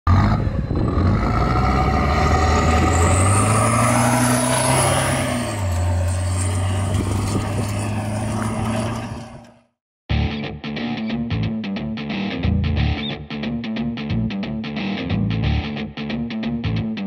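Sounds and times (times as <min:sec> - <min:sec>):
truck engine running: 0:00.1 - 0:09.7.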